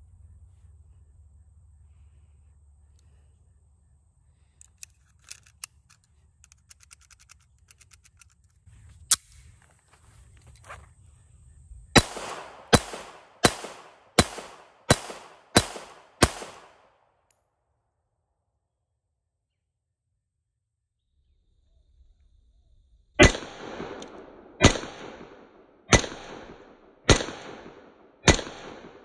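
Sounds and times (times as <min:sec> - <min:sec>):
pistol handling clicks: 0:04.4 - 0:09.4
pistol shots: 0:12.0 - 0:16.9, 0:23.2 - 0:29.0.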